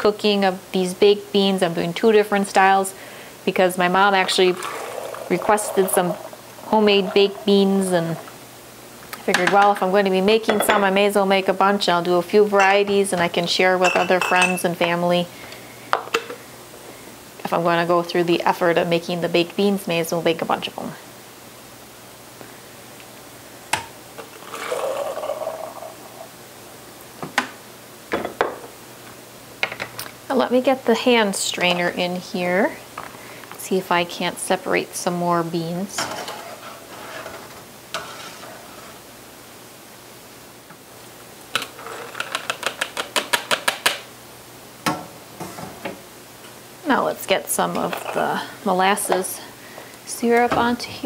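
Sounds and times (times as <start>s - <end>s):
beans sloshing into jar: 3.9s - 8.3s.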